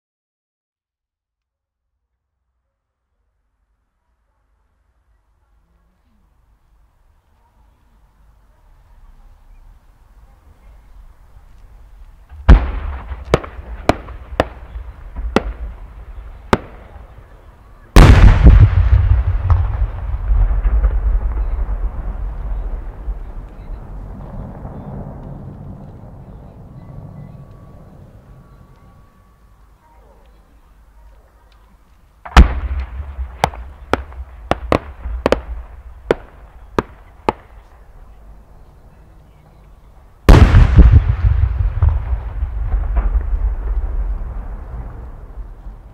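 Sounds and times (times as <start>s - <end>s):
sharp firework cracks: 12.0s - 17.3s, 17.9s - 26.0s, 32.2s - 37.8s, 40.3s - 45.9s
firework bang: 12.3s - 17.1s, 18.0s - 25.8s, 32.3s - 37.6s, 40.3s - 45.9s
deep firework boom with echo: 12.3s - 17.2s, 18.0s - 27.2s, 32.3s - 37.5s, 40.3s - 45.9s.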